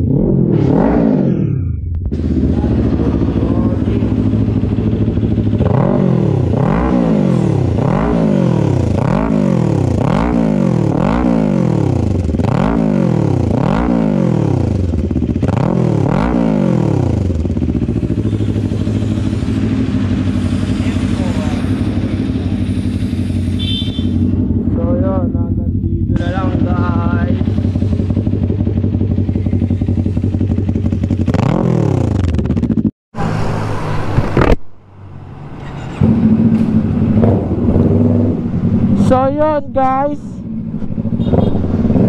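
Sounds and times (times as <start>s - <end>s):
motorcycle engine revving and idling: 0.0s - 34.6s, 35.7s - 42.0s.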